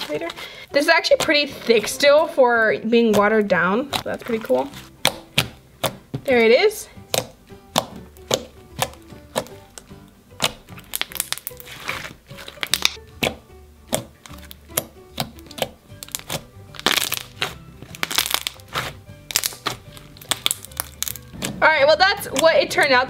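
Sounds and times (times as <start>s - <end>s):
quiet background music: 0.0s - 23.0s
slime squelching and popping: 3.1s - 6.4s, 7.0s - 21.6s.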